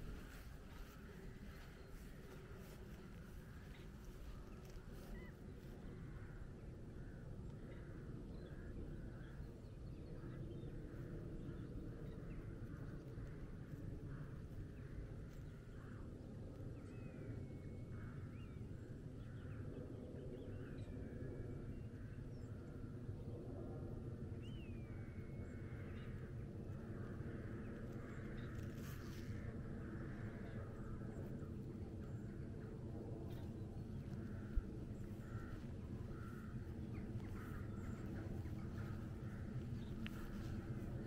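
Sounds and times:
distant bird calls: 0.0 - 9.4, 24.4 - 41.0
steady low rumble: 0.0 - 41.0.

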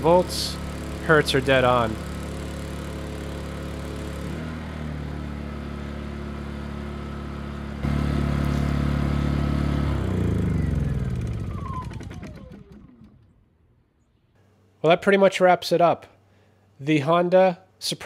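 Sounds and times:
generator engine running: 0.0 - 13.6
generator engine spinning down: 0.0 - 13.8.

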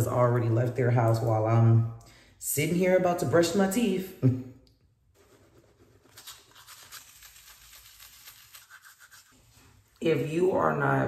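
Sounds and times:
toothbrush scrubbing teeth: 5.2 - 10.0.

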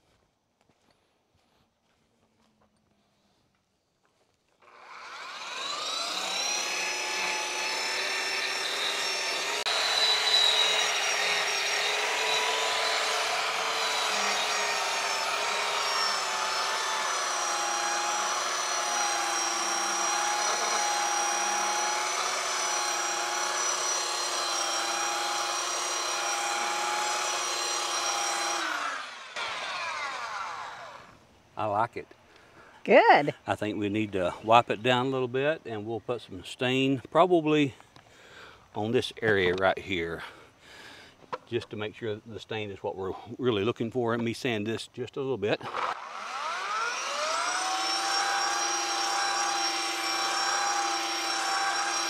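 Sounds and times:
electric sander on wood: 4.6 - 31.2, 45.6 - 52.0.

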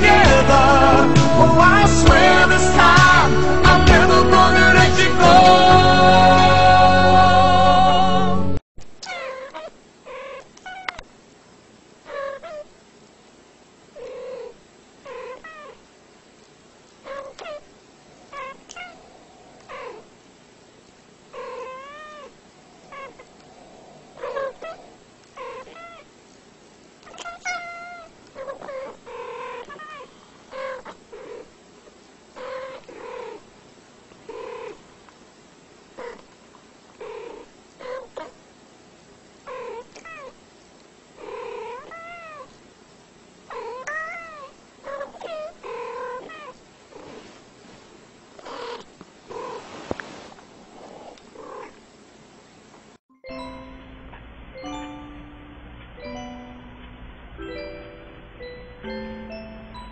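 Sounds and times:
cats meowing: 9.0 - 11.0, 17.1 - 20.1, 21.4 - 23.4, 24.2 - 26.1, 27.0 - 31.5, 32.4 - 33.4, 37.0 - 38.3, 39.5 - 40.4, 41.2 - 42.6, 43.5 - 46.6.

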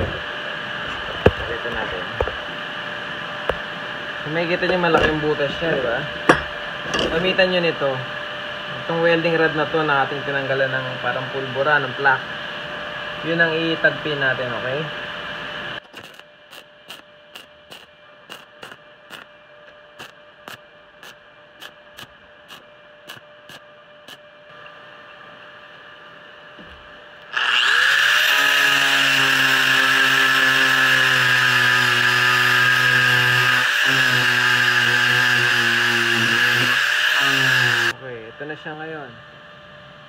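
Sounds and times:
angle grinder grinding steel: 4.2 - 7.6, 27.2 - 38.0
faint steady hum: 32.8 - 40.0.

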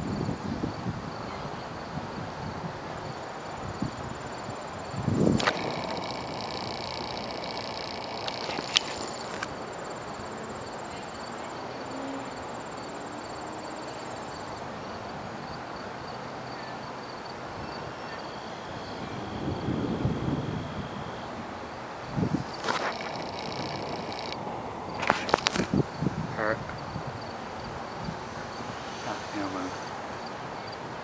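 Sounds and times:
insects chirping: 0.0 - 31.0
high multi-tone squeal: 5.2 - 9.5, 22.5 - 24.4.

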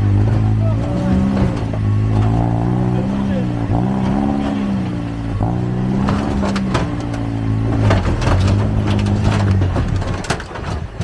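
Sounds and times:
vehicle engine revving under load: 0.0 - 11.0
sharp knocks and clatters: 5.4 - 11.0.

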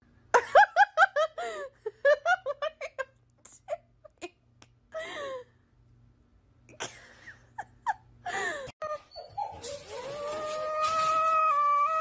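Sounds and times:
cats crying with hiss: 9.9 - 12.0.

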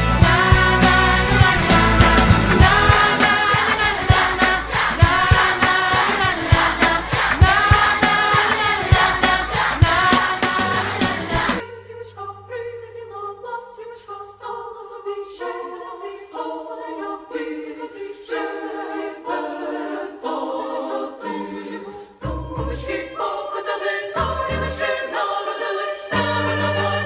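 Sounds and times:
low bass notes: 0.0 - 5.5
choir singing sustained chords: 0.0 - 27.0.

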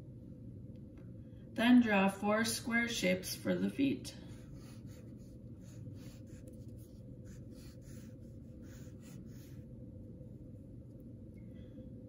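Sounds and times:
pencil scratching on paper: 4.3 - 9.7.

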